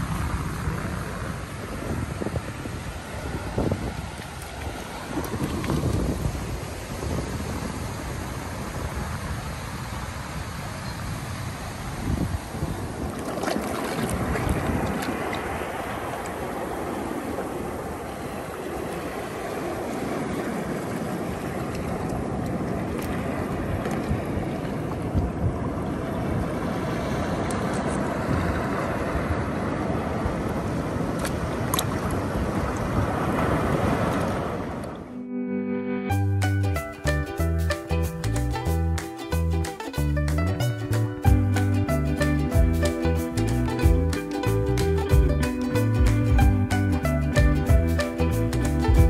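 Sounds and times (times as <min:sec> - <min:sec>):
sea waves breaking on rocks: 0:00.0 - 0:35.0
wind rumble on microphone: 0:00.0 - 0:35.1.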